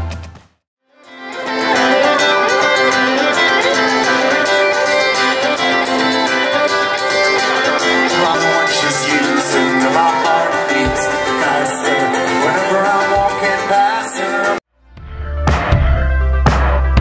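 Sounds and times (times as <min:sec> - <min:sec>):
band playing music: 0:01.2 - 0:14.6.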